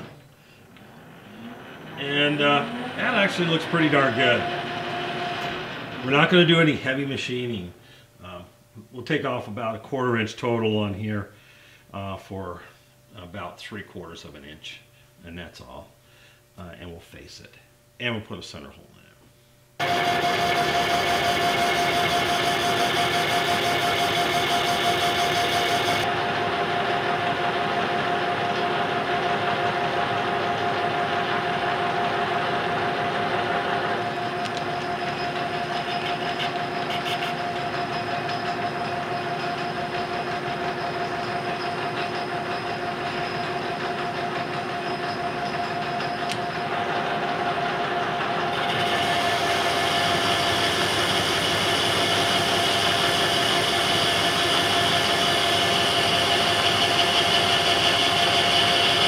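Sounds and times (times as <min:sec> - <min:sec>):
metal lathe whining: 0:00.0 - 0:06.4, 0:19.8 - 0:59.0.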